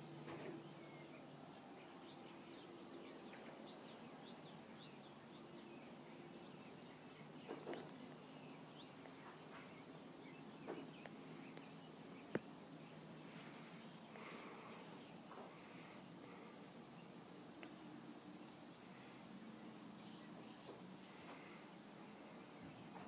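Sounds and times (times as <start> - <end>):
low steady hum: 0.0 - 23.0
small birds chirping: 0.0 - 23.0.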